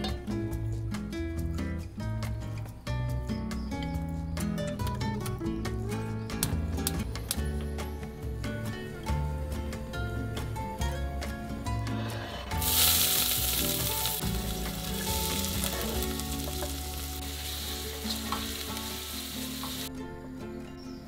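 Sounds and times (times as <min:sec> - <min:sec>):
soft background music: 0:00.0 - 0:21.0
onion sizzling in hot oil: 0:12.3 - 0:19.9.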